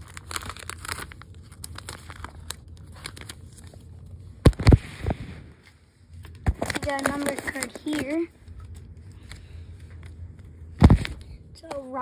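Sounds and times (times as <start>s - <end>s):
cards rustling and crinkling: 0.0s - 4.9s, 6.0s - 12.0s.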